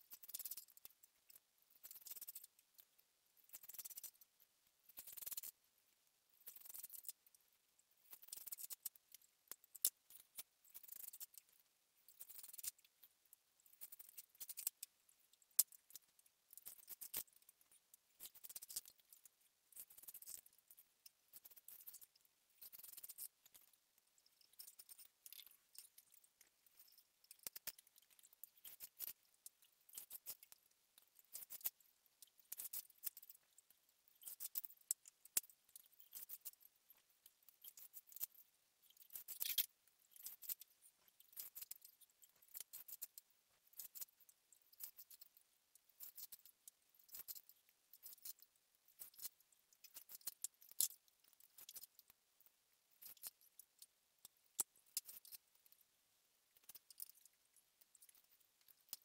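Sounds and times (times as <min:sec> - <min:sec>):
small clicks: 0:00.1 - 0:04.3, 0:06.4 - 0:07.4, 0:08.1 - 0:14.9, 0:15.5 - 0:52.2
cane strands scratching: 0:06.4 - 0:07.3, 0:15.6 - 0:31.8, 0:32.4 - 0:52.1.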